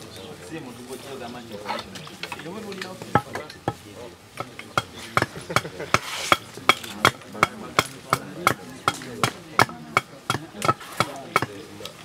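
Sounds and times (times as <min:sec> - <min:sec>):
hand tool chopping wood: 0:04.4 - 0:12.0.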